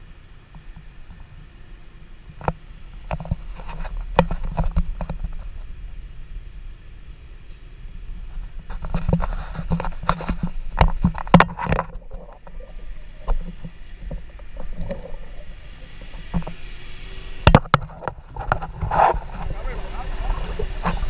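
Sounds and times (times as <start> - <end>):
water lapping: 11.9 - 17.5, 18.2 - 21.0.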